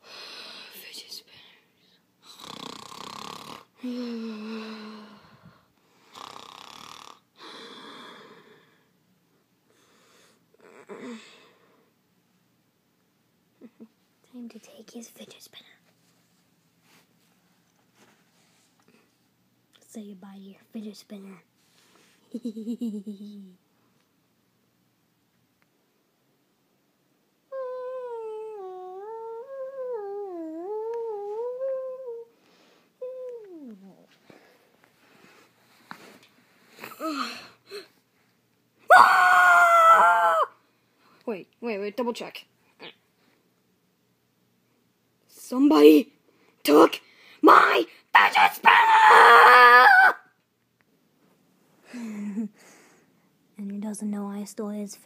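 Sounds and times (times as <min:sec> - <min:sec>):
person imitating snoring: 0:02.2 - 0:05.2, 0:06.0 - 0:07.6
long howling voice: 0:27.5 - 0:32.3, 0:38.9 - 0:40.6, 0:47.4 - 0:50.3.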